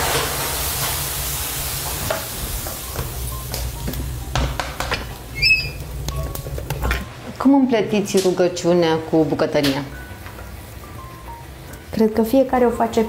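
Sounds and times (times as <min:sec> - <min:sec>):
utensils knocking and clattering: 0:03.0 - 0:05.2
brief squeak: 0:05.4 - 0:05.8.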